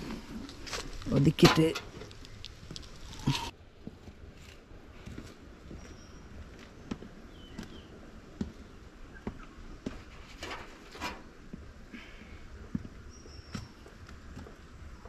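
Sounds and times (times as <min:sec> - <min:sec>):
bird chirps: 0:05.8 - 0:06.3.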